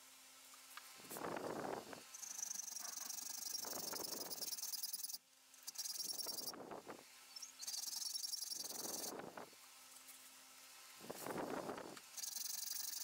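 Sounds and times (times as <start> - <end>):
steady high chirring: 2.1 - 6.6, 7.4 - 9.2, 12.1 - 13.0.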